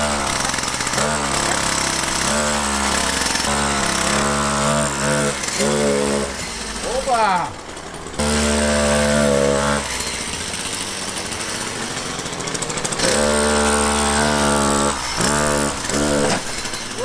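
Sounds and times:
chainsaw engine high-revving buzz: 0.0 - 17.0.

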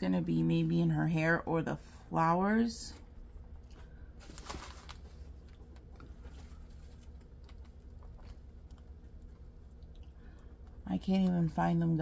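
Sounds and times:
plastic film rustling: 4.2 - 8.5.

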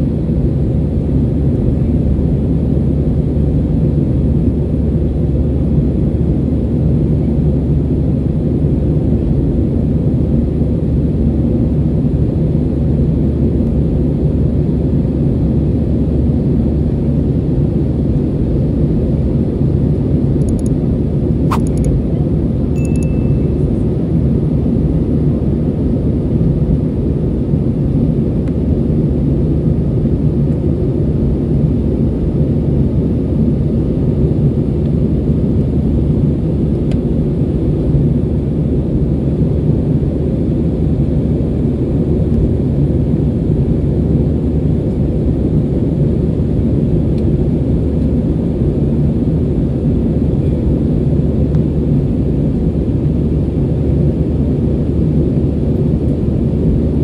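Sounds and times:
airplane cabin roar: 0.0 - 57.0
sharp click: 20.4 - 20.8, 21.5 - 22.0, 22.8 - 23.3
brief high tone: 22.8 - 23.8.

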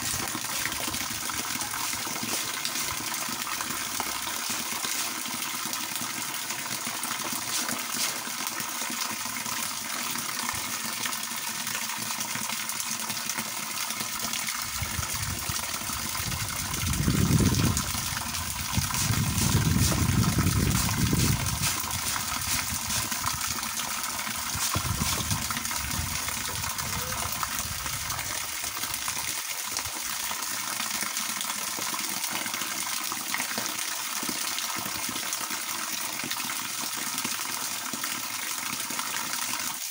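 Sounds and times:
water splashing on ground: 0.0 - 10.8, 14.1 - 30.3
water pouring from a garden hose: 0.0 - 39.9.

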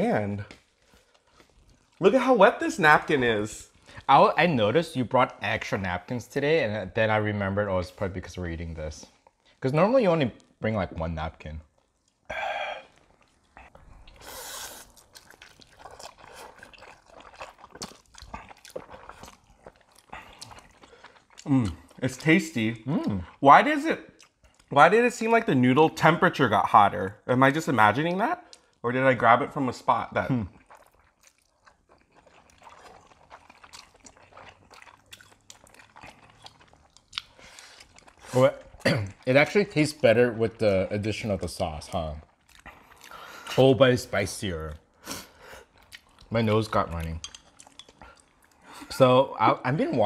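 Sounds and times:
wet chewing: 0.4 - 4.4, 11.6 - 23.4, 24.1 - 24.8, 30.2 - 43.6, 44.7 - 49.0
noodles slurping: 12.1 - 23.2, 30.2 - 44.0.

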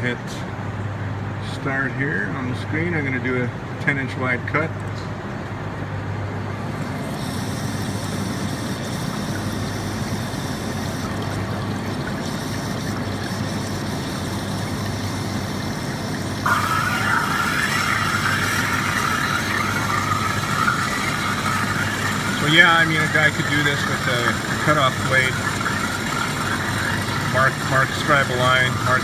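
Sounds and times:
steady machine hum: 0.0 - 29.0
water flushing and splashing: 6.6 - 29.0.

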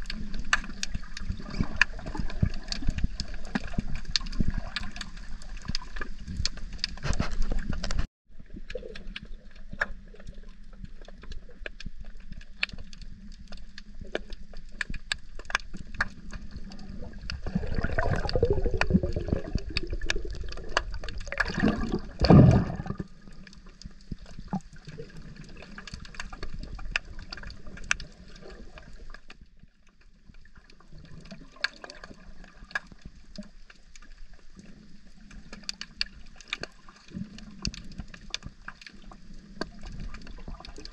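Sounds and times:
underwater crackle of clicks: 0.0 - 40.9
water rushing: 16.5 - 23.3.

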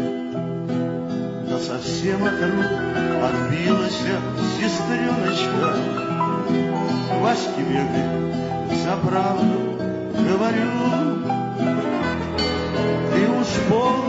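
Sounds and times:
acoustic guitar music: 0.0 - 14.0
accompanying instruments: 1.8 - 9.0.

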